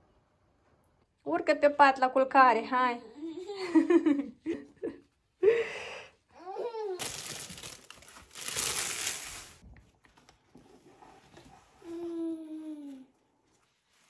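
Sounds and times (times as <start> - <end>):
crinkling rustle: 7.0 - 10.5.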